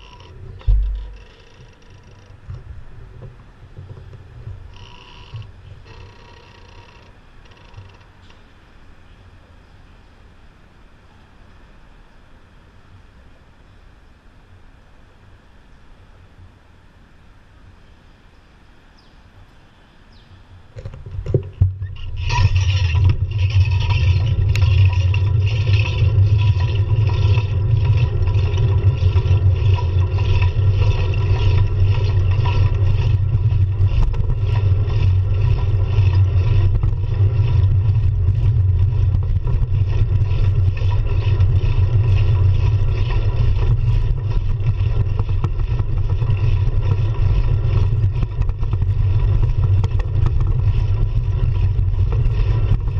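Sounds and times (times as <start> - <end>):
wind buffeting: 0.0 - 4.8, 20.4 - 52.9
road rumble: 0.0 - 52.9
knocks: 0.6 - 1.7.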